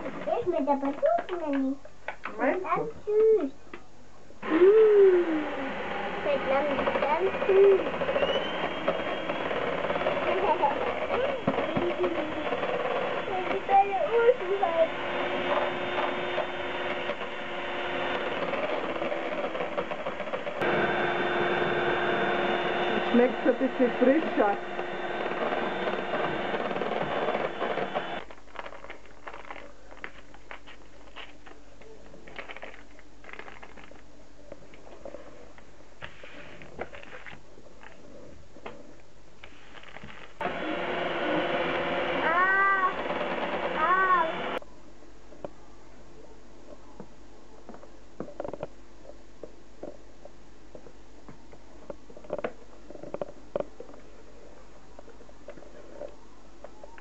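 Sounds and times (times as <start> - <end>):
electric hand mixer whipping cream: 4.4 - 28.2, 40.4 - 44.6.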